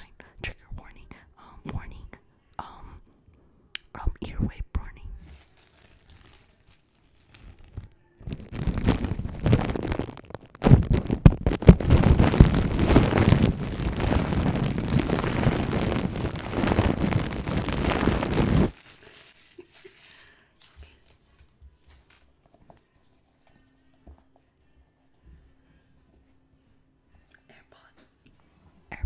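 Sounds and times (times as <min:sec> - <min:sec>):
plastic wrapping crinkling: 0:05.2 - 0:22.3.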